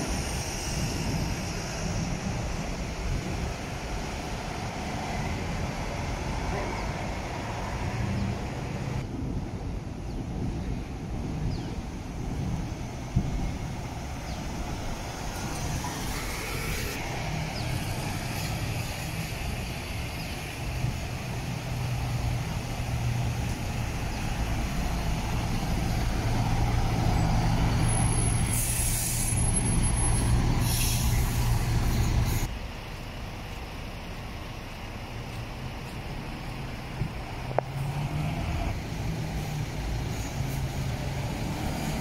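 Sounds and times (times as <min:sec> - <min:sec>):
bus diesel engines running: 0:00.0 - 0:42.0
air brake hisses: 0:28.3 - 0:29.6, 0:30.6 - 0:32.5.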